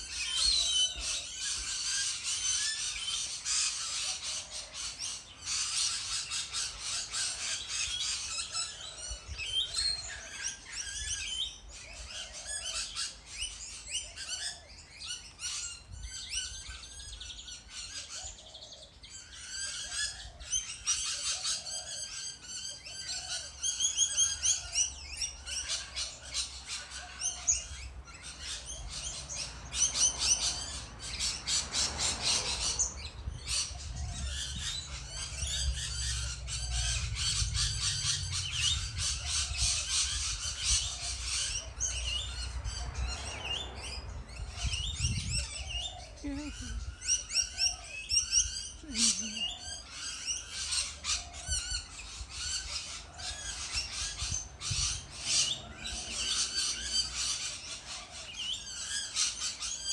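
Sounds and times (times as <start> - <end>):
parrots chirping and screeching: 19.1 - 59.9
low rumble: 32.5 - 45.5.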